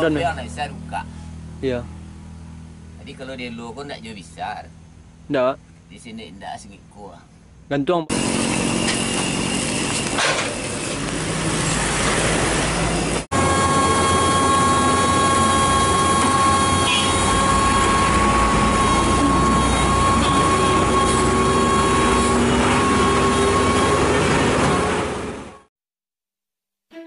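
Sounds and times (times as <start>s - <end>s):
excavator engine running: 7.4s - 25.7s
excavator high whine: 8.1s - 25.7s.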